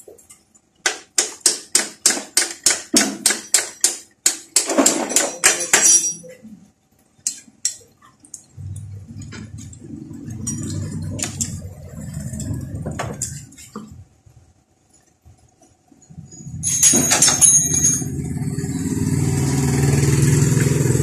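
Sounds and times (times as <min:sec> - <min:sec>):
low steady hum: 0:03.2 - 0:19.6.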